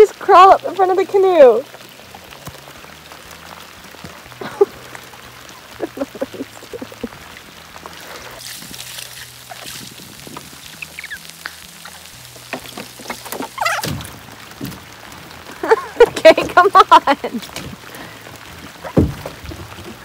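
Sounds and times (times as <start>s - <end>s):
rain falling on water: 0.0s - 20.0s
feet squelching in mud: 7.8s - 20.0s
wet sucking sounds: 7.9s - 12.4s.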